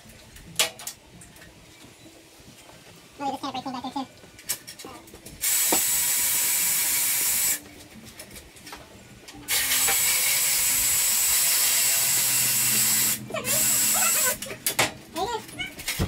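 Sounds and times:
power tool running with hiss: 5.4 - 7.6, 9.5 - 14.5.

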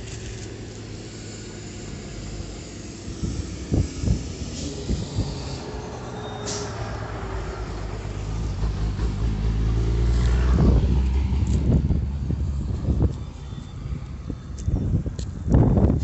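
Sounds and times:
heavy vehicle engine rumbling: 0.0 - 16.0
brief hiss: 6.4 - 6.9.

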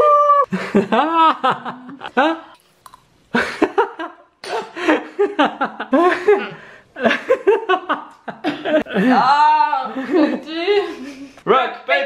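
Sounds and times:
laughter: 0.5 - 2.6, 3.3 - 9.2, 9.9 - 11.4
woman groaning and gagging: 9.0 - 11.0.

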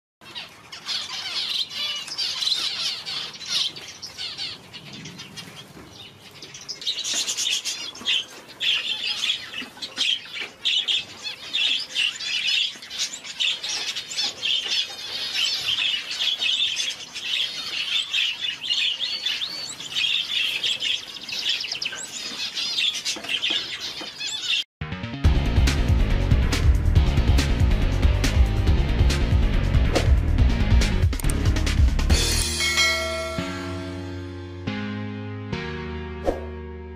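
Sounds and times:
finches chirping and twittering: 0.2 - 24.6.

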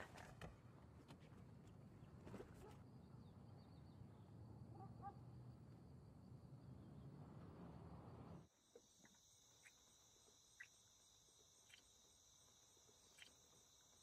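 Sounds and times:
crickets trilling: 8.4 - 14.0.

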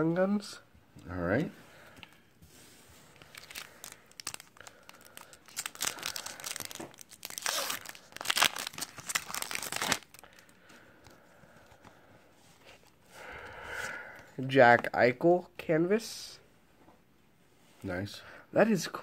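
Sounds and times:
foil wrapper crinkling and tearing: 3.2 - 10.5.

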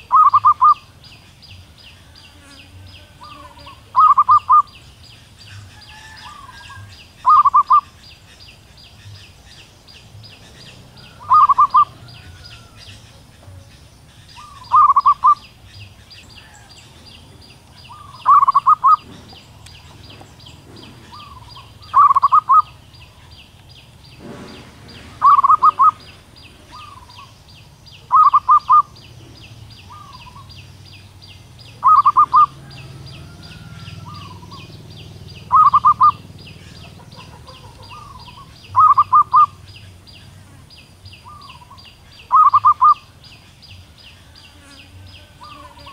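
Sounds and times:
dove calling: 0.0 - 45.9
fast high chirping: 17.9 - 19.0, 35.4 - 39.6.

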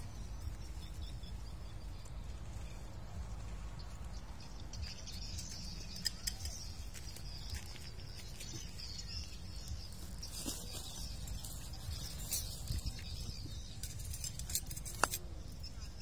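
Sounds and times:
high chirps and ticks: 0.0 - 16.0
sharp clicks: 5.1 - 7.2.

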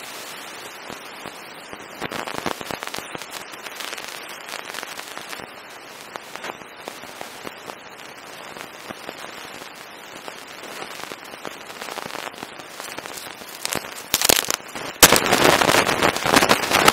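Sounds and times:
straw rustling and crackling: 12.8 - 14.7.

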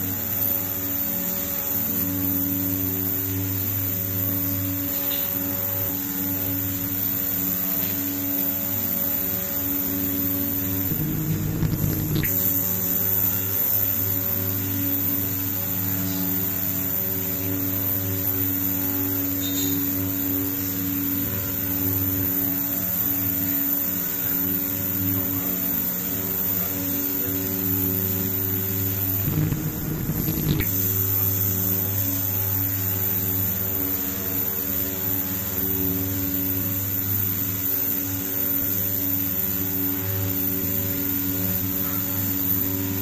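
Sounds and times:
electrical hum: 0.0 - 43.0
rough low noise: 10.6 - 13.1, 28.3 - 32.1.

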